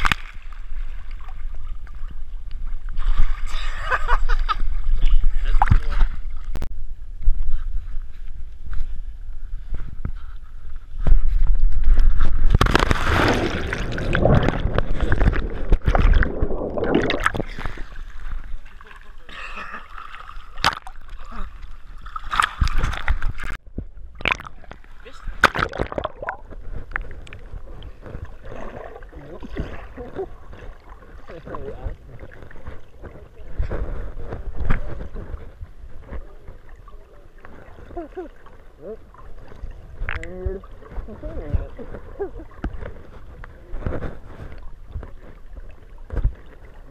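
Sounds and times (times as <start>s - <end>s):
underwater thump: 11.1s - 17.8s, 25.4s - 27.4s
wind rushing over microphone: 11.1s - 17.9s
underwater bubbling: 11.8s - 46.9s
body splashing into water: 12.4s - 18.4s, 25.4s - 26.5s.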